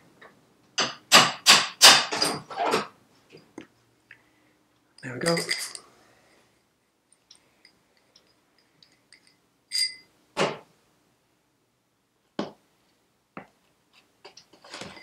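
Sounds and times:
light metallic clinks: 0:05.0 - 0:05.9, 0:07.1 - 0:10.1.

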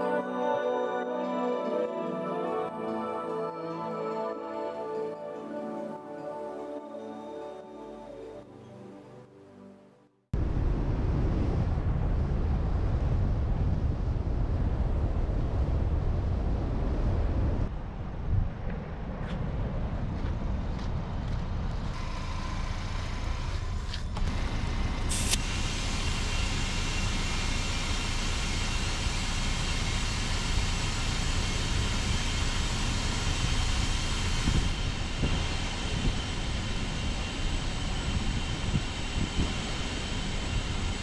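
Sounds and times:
motor vehicle driving rumble: 0:10.4 - 0:37.4.

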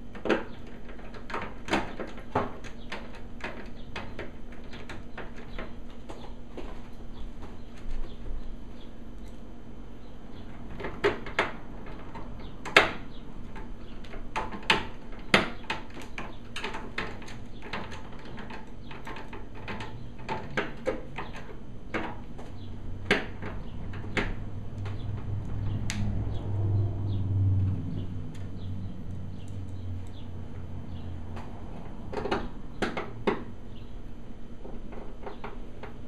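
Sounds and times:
low rumble: 0:24.5 - 0:32.0.

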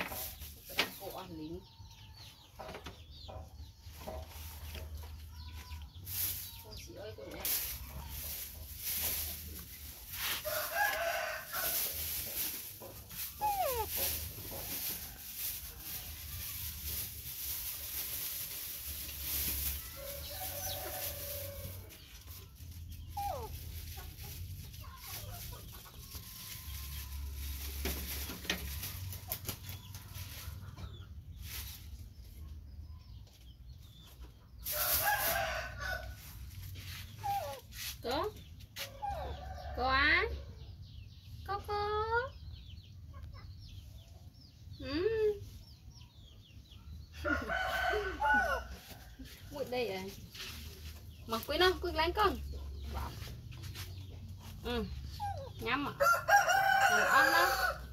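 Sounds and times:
chickens clucking: 0:00.0 - 0:57.9
rooster crowing: 0:56.0 - 0:57.8.

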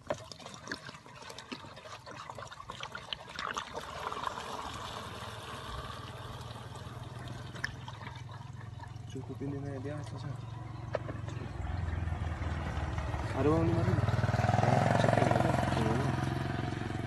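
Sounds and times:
petrol glugging through a funnel: 0:00.0 - 0:12.0.

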